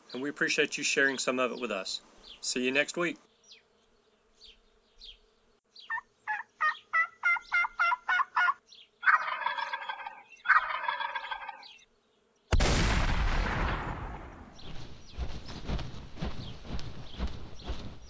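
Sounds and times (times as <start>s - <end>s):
turkey yelps: 5.9s - 11.7s
turkey gobbles: 5.9s - 11.8s
loud gunshot: 12.5s - 14.7s.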